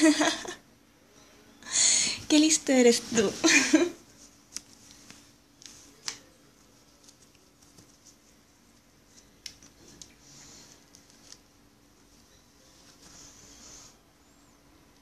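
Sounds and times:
faint low hum: 0.0s - 15.0s
clothing rustling: 2.3s - 13.7s.

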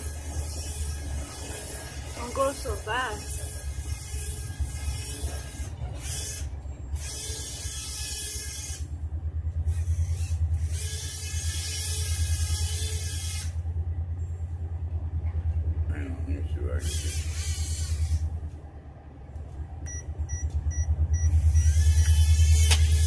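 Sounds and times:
toy plane motor buzzing: 0.0s - 8.9s, 9.6s - 13.6s, 16.8s - 18.3s, 21.4s - 23.0s.

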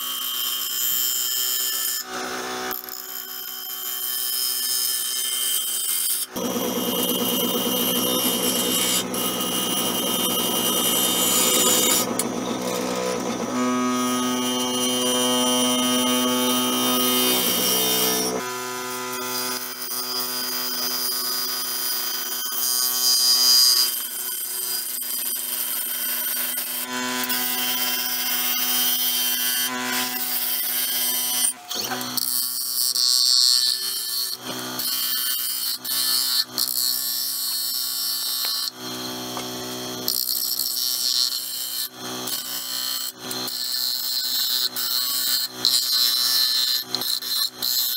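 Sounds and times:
gouge scraping spinning wood: 6.3s - 13.6s.

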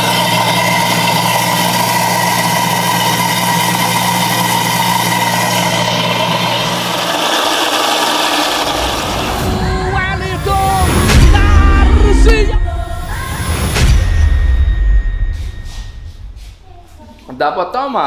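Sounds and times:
blender running: 0.0s - 9.6s.

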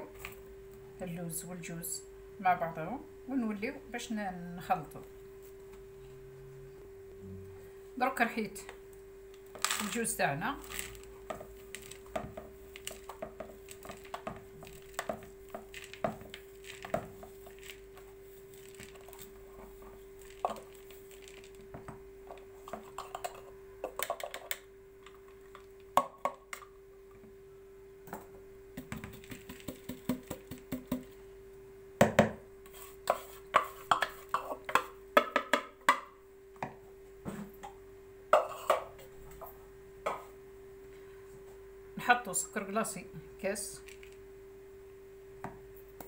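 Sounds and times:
faint steady hum: 0.0s - 46.0s
wooden spoon scraping plastic bowl: 32.7s - 34.9s.

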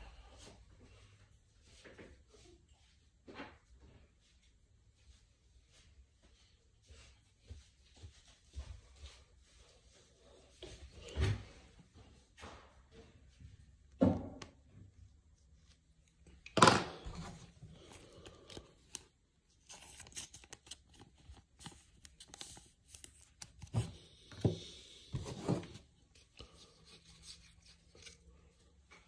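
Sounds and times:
plastic sleeve rustling and scraping: 17.1s - 28.6s.

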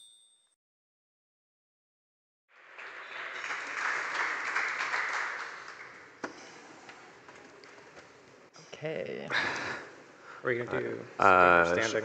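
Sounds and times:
audience applauding: 2.5s - 6.2s.

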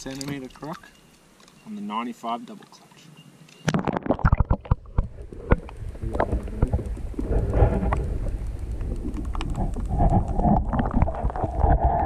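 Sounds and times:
small clicks and pops: 3.5s - 12.0s
muffled underwater rumble: 4.0s - 12.0s.

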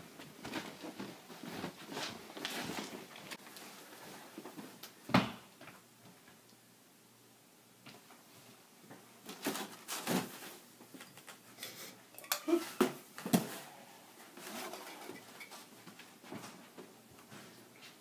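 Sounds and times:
footsteps: 0.0s - 4.8s, 12.7s - 18.0s.

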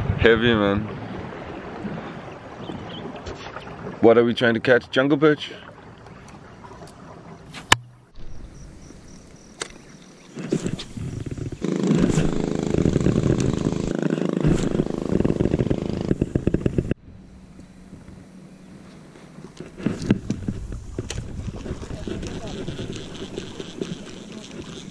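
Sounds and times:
sharp click: 9.2s - 9.8s
fishing reel whirring: 11.2s - 16.2s, 21.1s - 24.9s.

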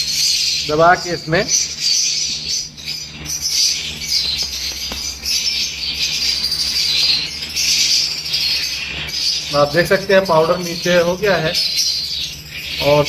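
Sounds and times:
parrots chattering and chirping: 0.0s - 13.0s.

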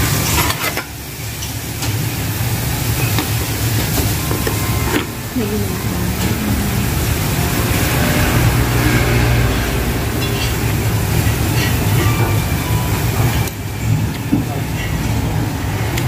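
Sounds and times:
low mechanical rumble: 4.4s - 14.3s.

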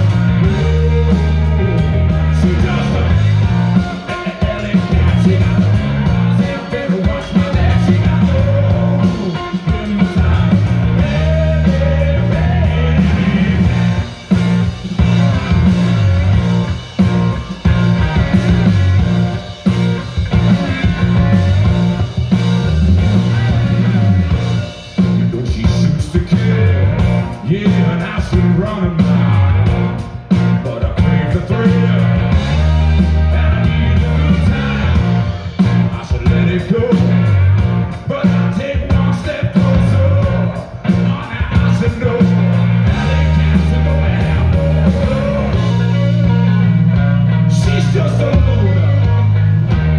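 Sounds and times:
drum kit: 0.0s - 49.9s
electric guitar: 0.0s - 49.9s.

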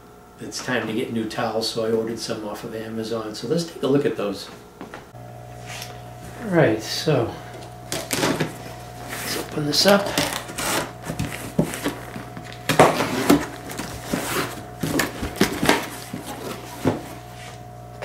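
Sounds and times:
packing tape pulled off cardboard: 7.9s - 17.1s
tape ripping: 9.2s - 16.7s
cardboard flaps rustling and knocking: 11.0s - 17.2s.

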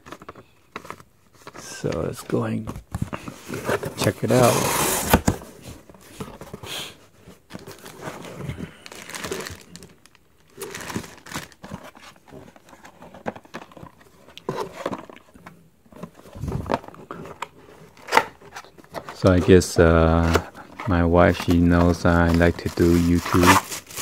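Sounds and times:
cardboard rustling: 0.0s - 24.0s
plastic packaging crinkling: 7.5s - 15.3s, 16.1s - 24.0s.

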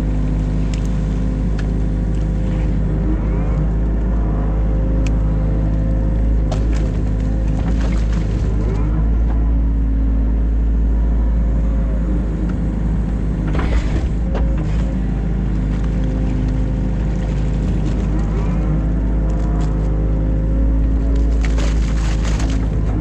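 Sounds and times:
excavator diesel engine running: 0.0s - 23.0s
clattering and scraping: 13.4s - 15.1s.

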